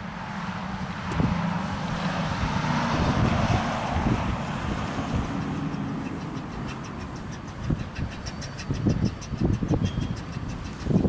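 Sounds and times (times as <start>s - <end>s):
wind on microphone: 0.9s - 11.0s
steam train approaching: 5.1s - 11.0s.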